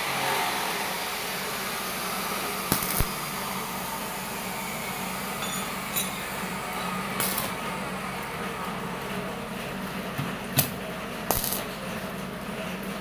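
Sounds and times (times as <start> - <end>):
welding arc crackling and buzzing: 0.0 - 8.4, 10.5 - 11.8.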